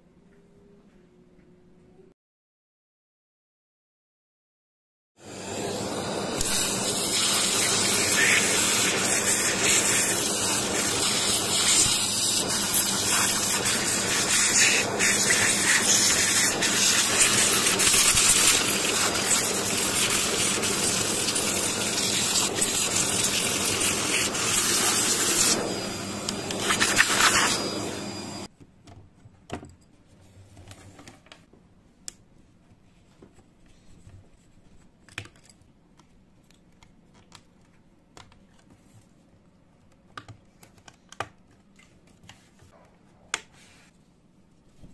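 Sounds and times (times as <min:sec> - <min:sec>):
vacuum cleaner running: 0:05.2 - 0:28.5.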